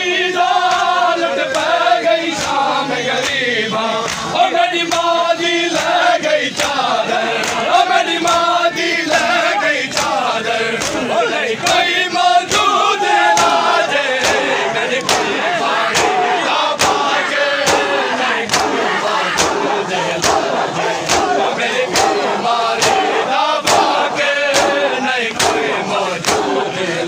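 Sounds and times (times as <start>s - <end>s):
men chanting in unison: 0.0s - 27.0s
hands slapping chests: 4.0s - 5.1s, 7.4s - 7.6s, 9.9s - 10.2s, 10.8s - 11.9s, 13.3s - 16.2s, 16.8s - 26.6s.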